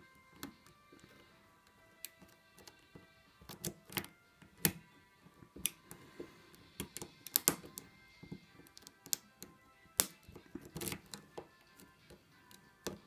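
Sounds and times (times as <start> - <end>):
lock pick clicking in lock: 3.5 - 4.8, 6.8 - 7.9, 10.0 - 11.9.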